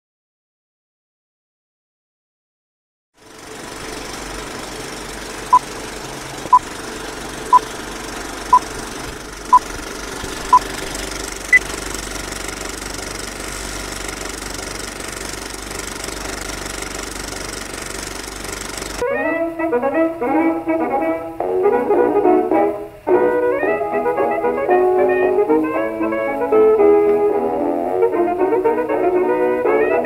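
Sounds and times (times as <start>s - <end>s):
film projector clatter and hiss: 3.2s - 19.0s.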